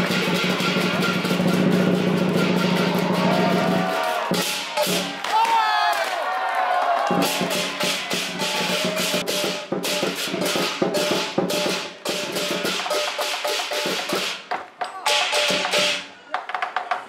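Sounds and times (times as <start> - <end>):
cymbals clashing: 0.0 - 5.2, 7.1 - 14.5, 15.1 - 16.1
drum beating: 0.0 - 5.8, 6.9 - 17.0.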